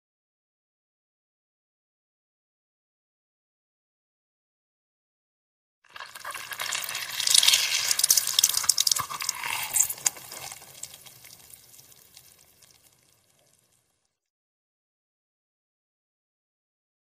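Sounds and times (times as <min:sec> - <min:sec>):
lemon pulp crackling wetly: 0:05.9 - 0:14.0.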